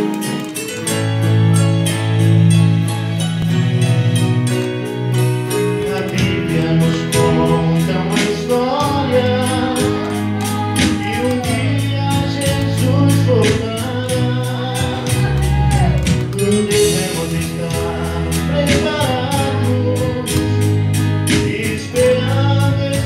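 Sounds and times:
steady beat: 0:00.0 - 0:22.6
acoustic guitar: 0:00.0 - 0:23.0
electronic keyboard: 0:00.0 - 0:23.0
man singing: 0:05.5 - 0:23.0.

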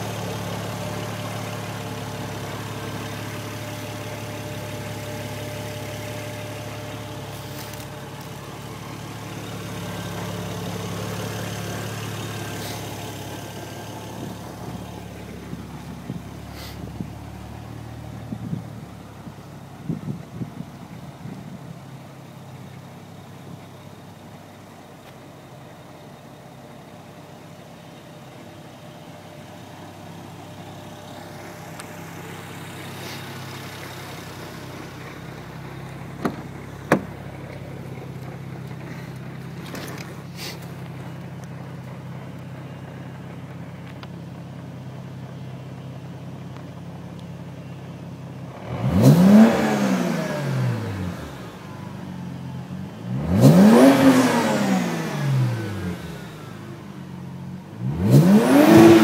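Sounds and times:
car engine idling: 0:00.0 - 0:59.0
car door opening clicks: 0:36.2 - 0:37.3
engine revving: 0:48.5 - 0:52.0, 0:52.8 - 0:56.9, 0:57.7 - 0:59.0.

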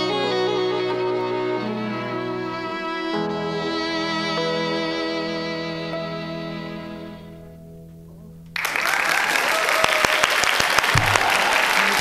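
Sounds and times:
string ensemble and harp chord: 0:00.0 - 0:08.4
audience clapping: 0:08.6 - 0:12.0.

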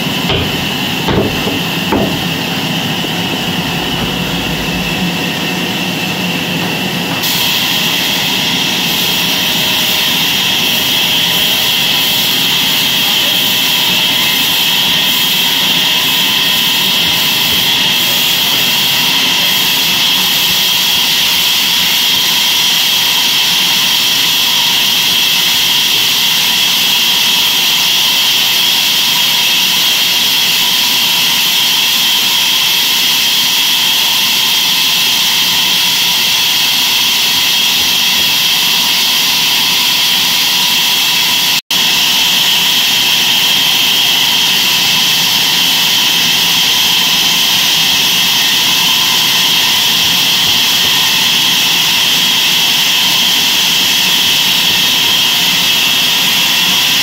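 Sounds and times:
band sawmill sawing log: 0:00.0 - 0:05.4.

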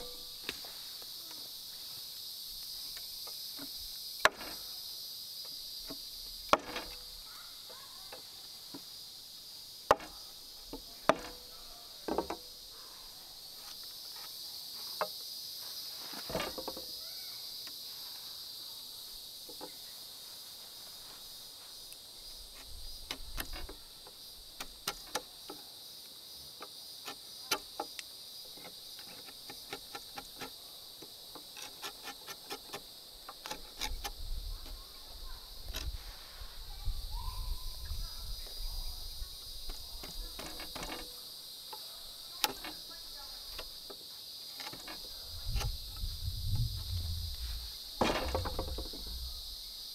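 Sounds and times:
insects chirring: 0:00.0 - 0:49.9
knocks and taps on wood: 0:48.0 - 0:49.3.

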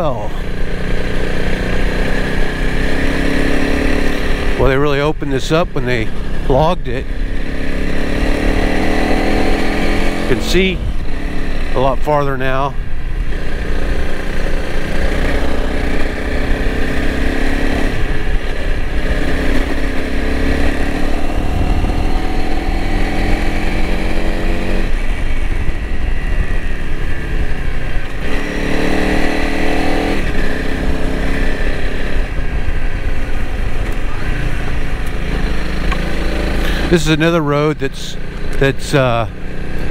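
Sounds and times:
motorcycle engine revving: 0:00.0 - 0:39.9
wind and tyres on gravel: 0:06.0 - 0:11.8, 0:12.6 - 0:37.0.

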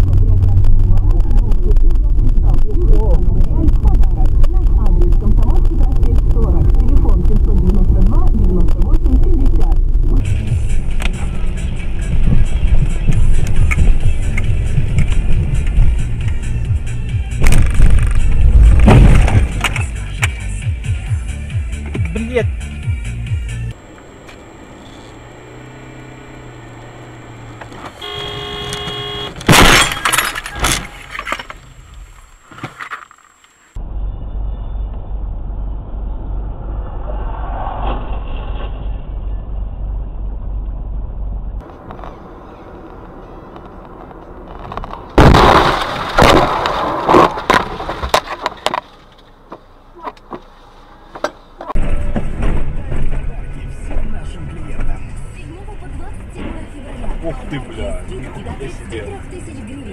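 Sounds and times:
car interior noise: 0:00.0 - 0:20.9, 0:21.8 - 0:59.9
crunching and knocks: 0:17.4 - 0:19.8, 0:28.8 - 0:33.2, 0:44.4 - 0:49.2
car crash: 0:17.4 - 0:19.9, 0:23.8 - 0:33.4, 0:41.6 - 0:49.4, 0:51.1 - 0:54.2
car horn blaring: 0:23.8 - 0:29.6.

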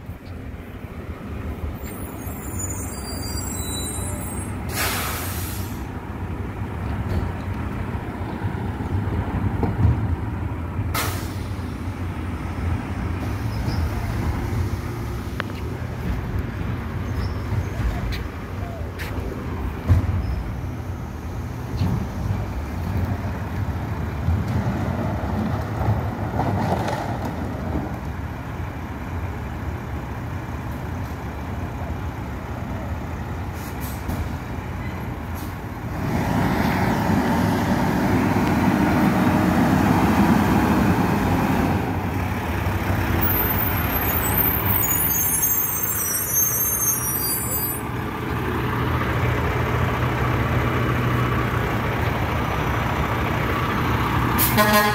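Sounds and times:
diesel engine running: 0:00.0 - 0:54.9.

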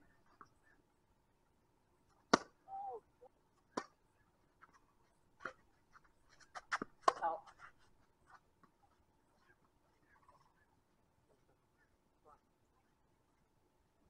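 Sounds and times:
tennis ball struck by rackets: 0:02.3 - 0:02.6, 0:03.8 - 0:04.0, 0:06.6 - 0:07.4.

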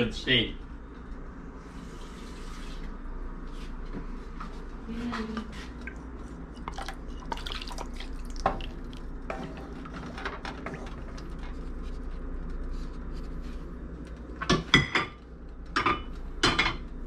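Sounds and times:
liquid dripping and splashing: 0:05.9 - 0:10.0.

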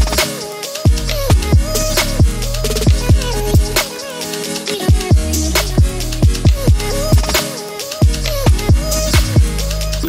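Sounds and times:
electronic music: 0:00.0 - 0:10.0.

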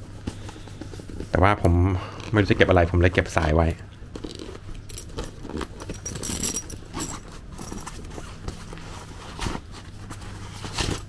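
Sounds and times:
fabric rustling: 0:04.2 - 0:11.0.

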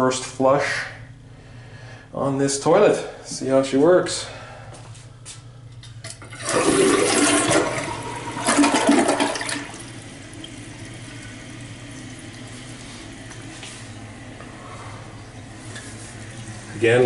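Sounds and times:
toilet flush clicks: 0:06.0 - 0:12.4
toilet flushing water rush: 0:06.2 - 0:17.0
toilet tank refilling hiss: 0:06.3 - 0:14.4.

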